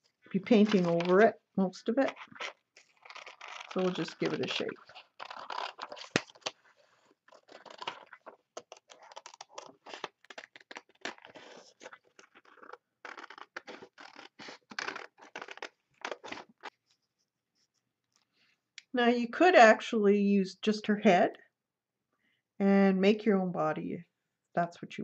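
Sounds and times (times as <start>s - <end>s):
paper rustling: 0.3s - 1.3s, 2.0s - 17.7s
scissors snipping paper: 2.0s - 6.6s.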